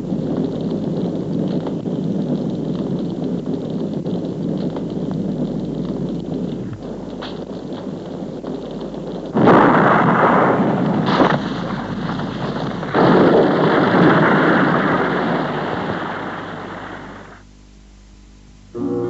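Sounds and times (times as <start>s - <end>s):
loud blasts: 9.4s - 17.4s
short crack: 11.0s - 13.2s.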